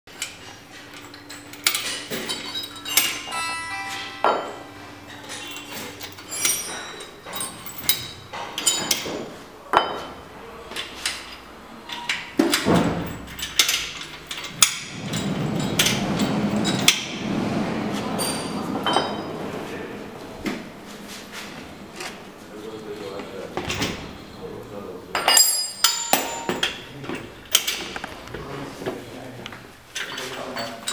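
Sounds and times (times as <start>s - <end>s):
metal clinks and knocks: 0.9s - 10.2s, 10.8s - 17.2s, 25.2s - 26.9s.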